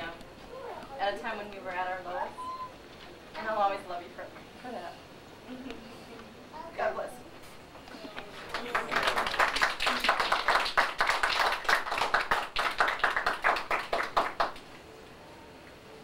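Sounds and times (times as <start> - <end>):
people applauding: 8.3 - 14.7.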